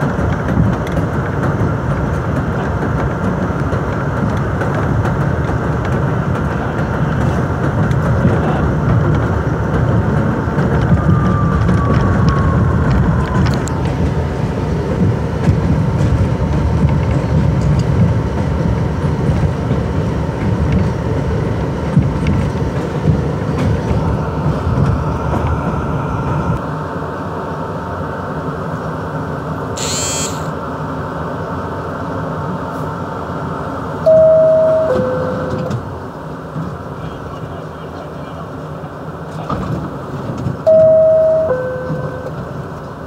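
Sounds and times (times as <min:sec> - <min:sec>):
subway train rumbling: 0:00.0 - 0:43.0
high rasping burst: 0:29.8 - 0:30.5
two-tone door-closing chime: 0:34.1 - 0:35.8, 0:40.7 - 0:42.5.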